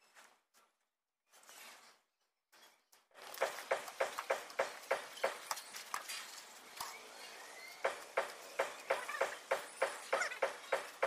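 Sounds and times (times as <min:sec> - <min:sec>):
steady knocking strikes: 0:03.4 - 0:05.5, 0:07.8 - 0:11.0.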